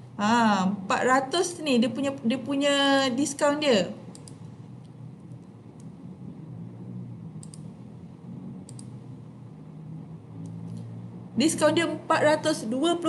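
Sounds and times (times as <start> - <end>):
low steady hum: 0.0 - 13.0
computer mouse clicks: 4.1 - 6.0, 7.4 - 7.7, 8.6 - 9.0.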